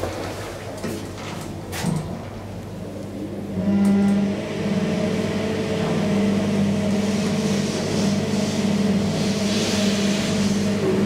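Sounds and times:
elevator motor hum: 0:01.5 - 0:11.0
air hiss and rail noise: 0:05.8 - 0:11.0.

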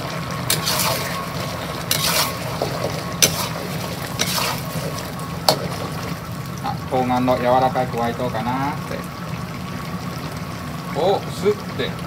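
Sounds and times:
stew simmering: 0:00.0 - 0:12.0
metal ladle scraping wok: 0:00.4 - 0:06.2.

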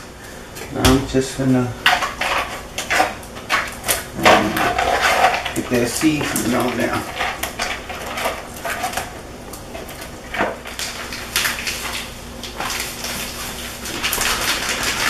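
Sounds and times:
plastic bag rustling: 0:03.3 - 0:15.0.

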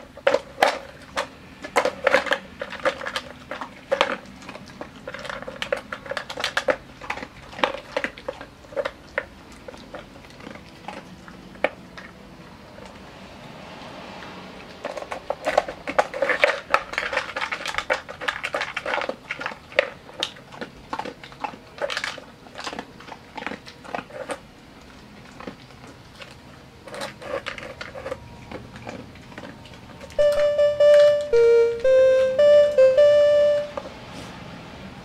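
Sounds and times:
dog crunching kibble: 0:00.0 - 0:13.1, 0:14.5 - 0:30.2
music: 0:30.2 - 0:33.8.

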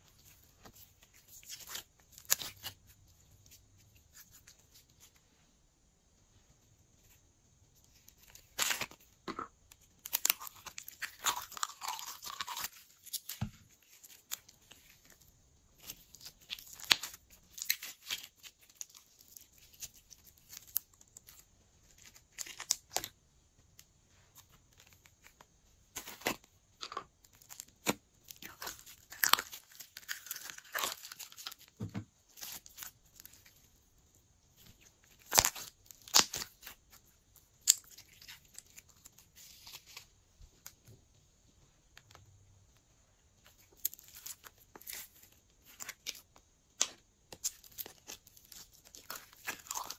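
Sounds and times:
slime popping and crackling: 0:09.7 - 0:15.0, 0:27.3 - 0:33.4, 0:35.0 - 0:40.0, 0:43.6 - 0:49.9.

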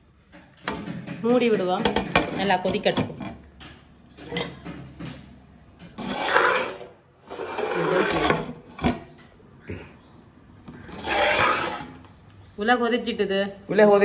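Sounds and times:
metal lid scraping pot rim: 0:05.9 - 0:09.0, 0:10.7 - 0:12.1.

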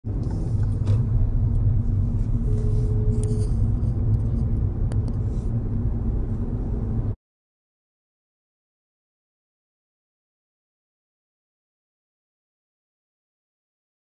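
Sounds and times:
car road and engine rumble: 0:00.0 - 0:07.2
thin steady tone: 0:02.2 - 0:04.6.

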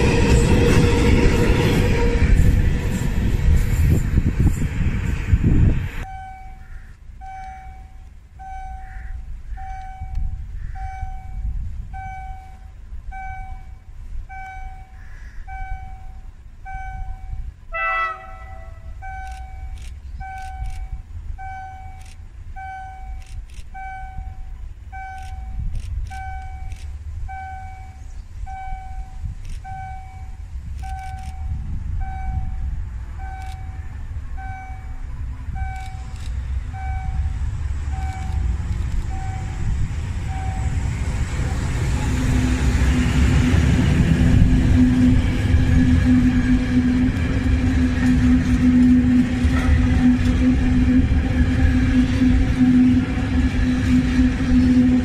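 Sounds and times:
diesel locomotive engine rumble: 0:00.0 - 0:55.0
high beeps: 0:06.0 - 0:09.0, 0:09.6 - 0:32.6, 0:33.2 - 0:33.8, 0:34.4 - 0:37.4.

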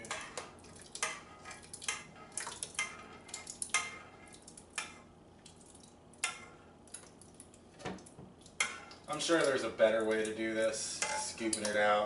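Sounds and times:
metal spoon scraping a saucepan: 0:00.0 - 0:05.1, 0:08.6 - 0:12.0.

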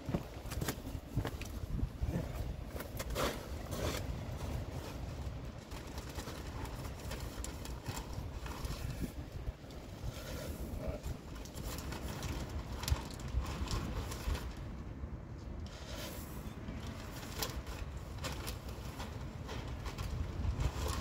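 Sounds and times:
wind rumbling on microphone: 0:00.0 - 0:21.0
plastic bag crinkling: 0:11.2 - 0:14.6.

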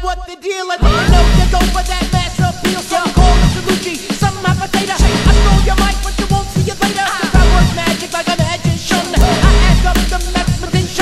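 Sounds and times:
deep bass note: 0:00.8 - 0:01.8
drum hits: 0:00.8 - 0:11.0.

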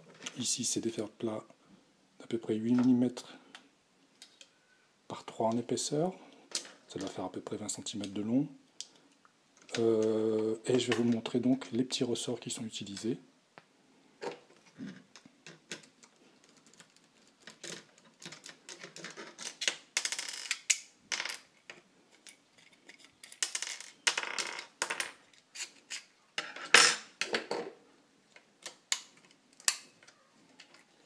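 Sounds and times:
plastic and metal parts clicking: 0:15.1 - 0:20.8.

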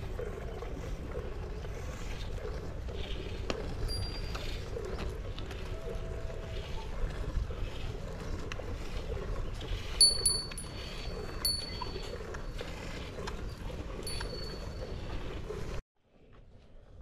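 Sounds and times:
small metal cow bell clinking: 0:03.9 - 0:04.4, 0:10.0 - 0:10.8, 0:11.4 - 0:12.1, 0:14.0 - 0:14.8.

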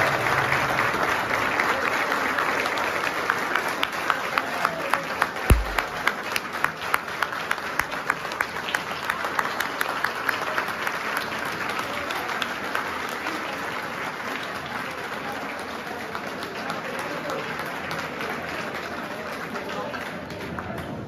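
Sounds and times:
crowd applauding: 0:00.0 - 0:21.0
low thump: 0:05.5 - 0:06.0.

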